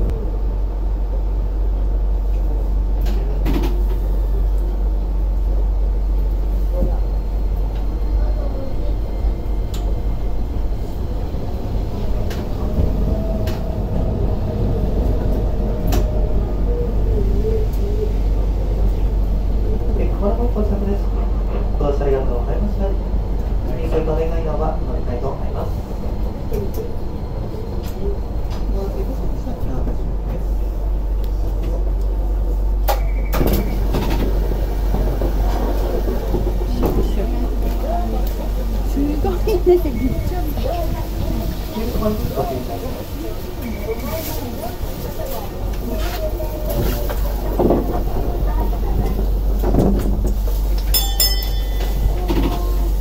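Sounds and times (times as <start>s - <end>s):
tram low rumble: 0.0s - 53.0s
faint voices: 6.4s - 32.8s, 34.8s - 50.8s, 51.6s - 53.0s
short electronic beep: 32.9s - 33.8s.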